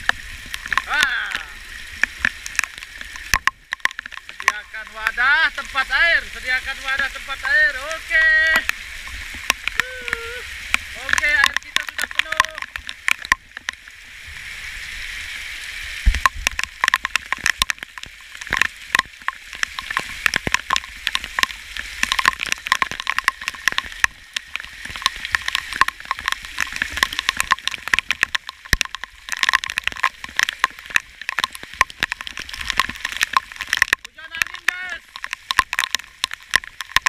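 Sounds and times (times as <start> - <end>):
heavy rain hissing: 0.0 - 2.3, 4.5 - 12.6
drops tapping near microphone: 0.0 - 5.8, 10.7 - 13.8, 16.0 - 37.0
runoff splashing into buckets: 3.3 - 13.2, 17.4 - 37.0.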